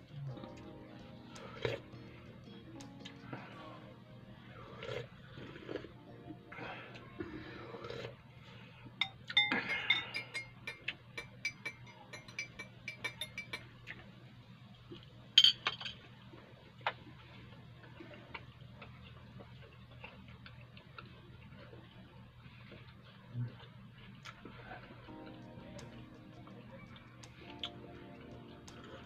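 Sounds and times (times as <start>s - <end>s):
chewing and mouth sounds: 4.7s - 6.0s, 16.8s - 29.0s
teaspoon clinking in glass cup: 9.0s - 13.7s.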